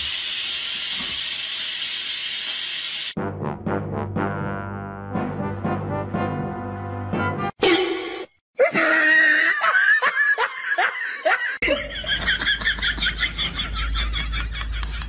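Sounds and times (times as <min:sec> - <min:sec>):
laughter in quick bursts: 0:09.4 - 0:15.0.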